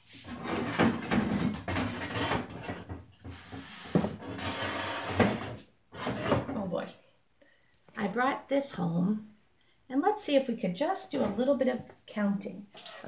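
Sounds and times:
whiteboard scraping and rubbing: 0.0 - 6.5.

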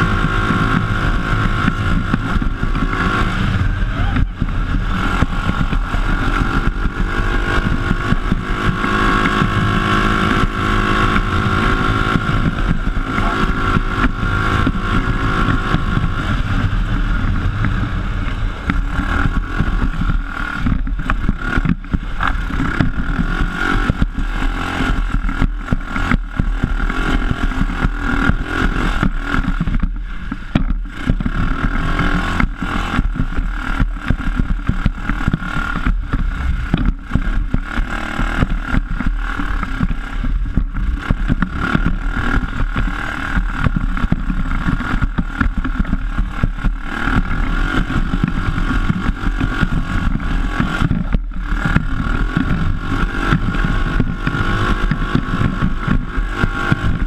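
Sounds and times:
buggy engine running: 0.0 - 57.0
chassis knocking and rattling: 35.7 - 37.9.

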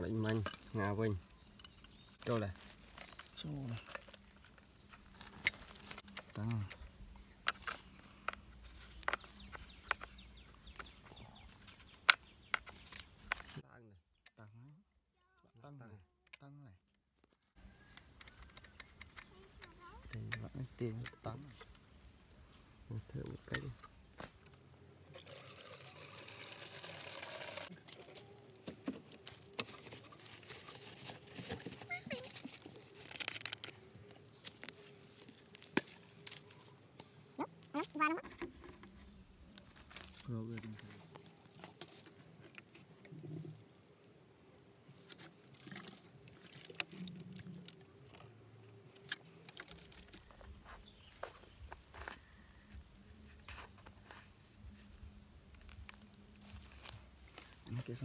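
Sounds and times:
liquid pouring through funnel: 25.1 - 27.7, 45.4 - 48.2, 49.4 - 50.4
liquid sloshing in plastic jug: 45.5 - 47.8.

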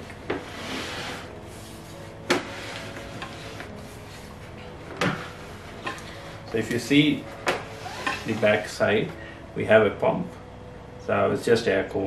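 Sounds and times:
glass tank scraping on wood: 0.3 - 4.5.

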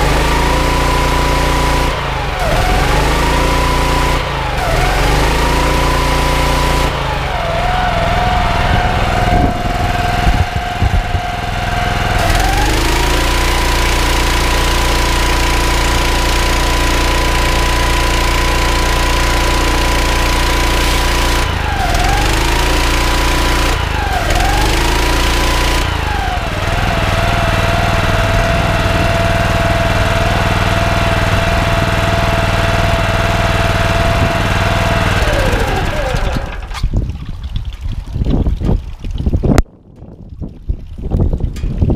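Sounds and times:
petrol engine revving: 0.0 - 36.9.

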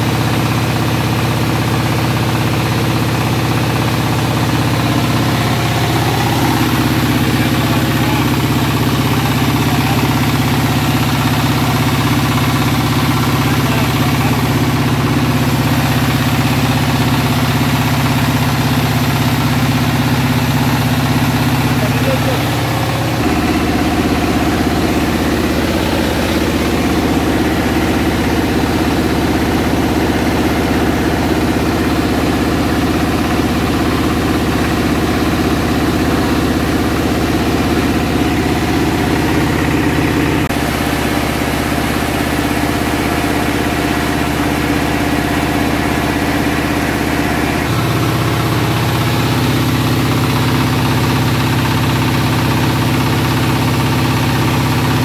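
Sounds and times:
rice milling machine humming: 0.0 - 55.0.

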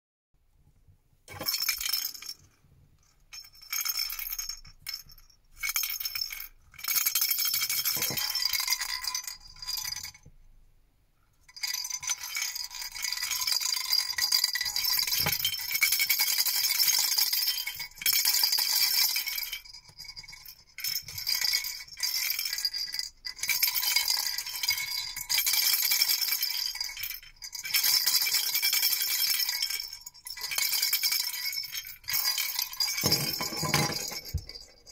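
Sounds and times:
plastic baby rattles shaken: 1.3 - 2.5, 3.3 - 10.0, 11.7 - 19.3, 23.3 - 34.9.

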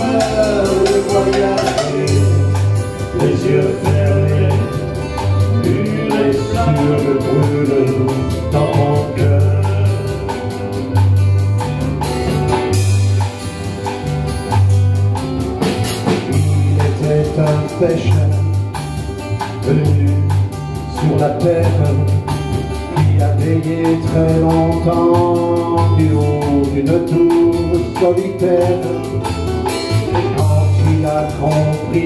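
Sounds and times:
bass line: 0.0 - 32.0
drum kit steady beat: 0.0 - 32.0
strummed acoustic guitars: 0.0 - 32.0.

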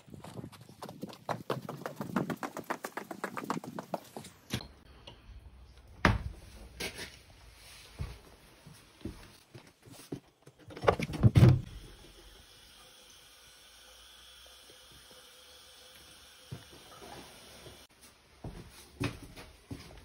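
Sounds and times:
washbasin tap running: 11.6 - 17.9.

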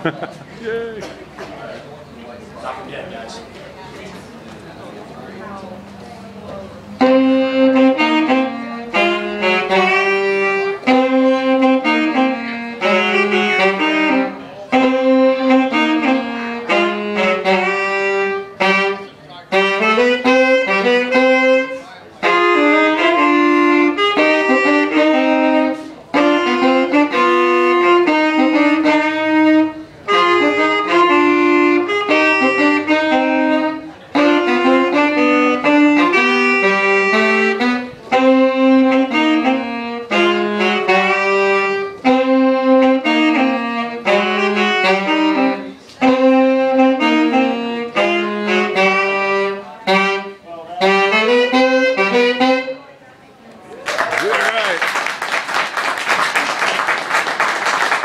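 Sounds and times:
saxophones playing jazz duet: 6.8 - 53.0.

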